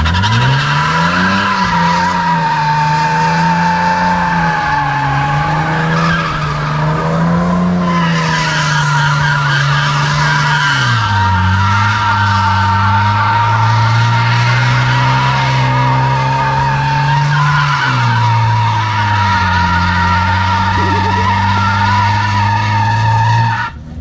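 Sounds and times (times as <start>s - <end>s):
car engine revving: 12.8s - 23.4s.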